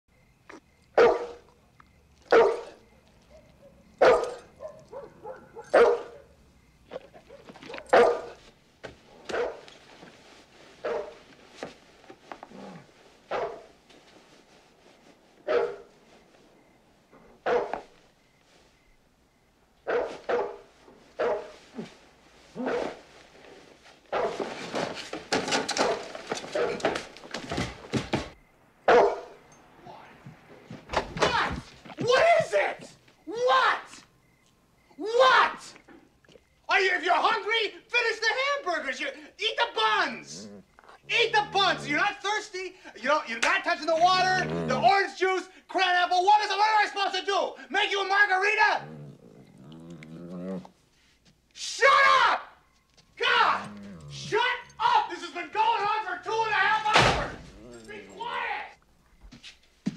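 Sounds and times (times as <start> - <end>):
large dog barking: 0.9 - 1.6, 2.2 - 8.4, 9.3 - 9.7, 10.8 - 11.2, 12.6 - 13.8, 15.4 - 15.9, 17.4 - 17.9, 19.8 - 21.6, 22.6 - 23.0, 24.1 - 24.4, 25.7 - 27.0, 28.8 - 29.4, 39.7 - 42.2, 43.7 - 45.1, 53.2 - 55.0, 56.8 - 58.5.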